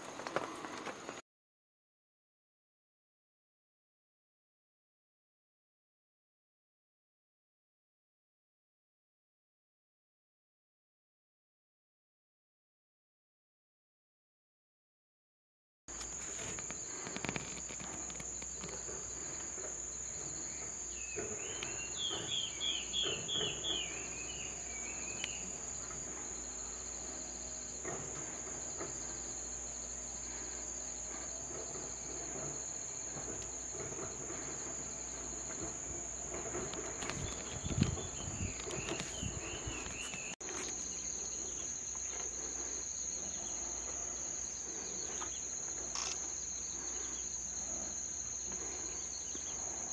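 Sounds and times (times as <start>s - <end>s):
insects droning: 0.0s - 1.2s, 15.9s - 49.9s.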